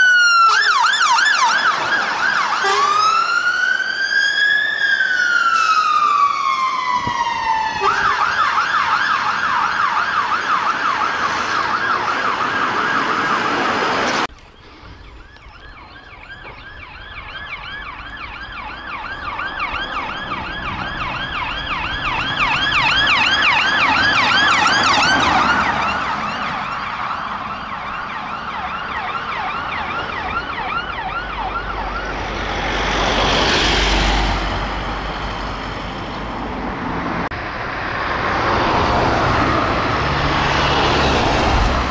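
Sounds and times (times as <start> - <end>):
emergency siren yelping: 0.0 - 35.9
police siren passing: 0.0 - 41.9
vehicle driving past: 18.1 - 26.7, 31.1 - 41.9.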